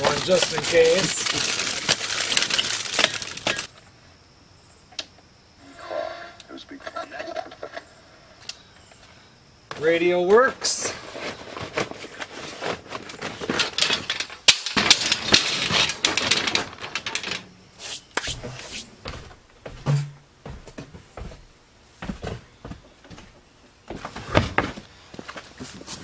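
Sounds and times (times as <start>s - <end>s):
gear rattling in plastic tote: 0.0s - 3.7s, 10.9s - 17.4s
rustling: 0.0s - 3.7s, 10.9s - 18.9s.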